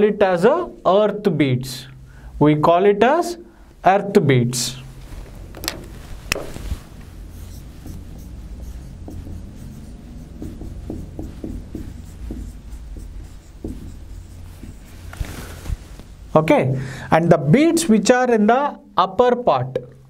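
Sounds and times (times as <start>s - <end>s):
marker squeaking on whiteboard: 5.4s - 15.5s.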